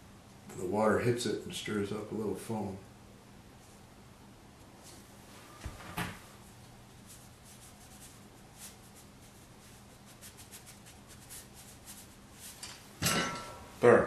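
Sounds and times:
low steady hum: 0.0s - 14.0s
brush strokes on paper: 6.9s - 12.6s.

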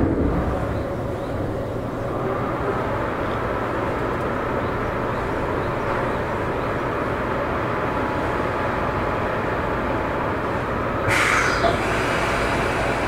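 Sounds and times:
electric train rumbling: 0.0s - 13.0s
loud hiss: 11.1s - 13.0s.

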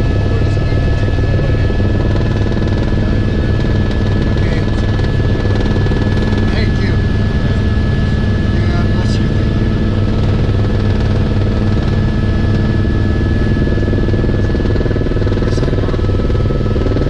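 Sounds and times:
helicopter engine and rotor drone: 0.0s - 17.0s
thin steady whine: 0.0s - 17.0s.

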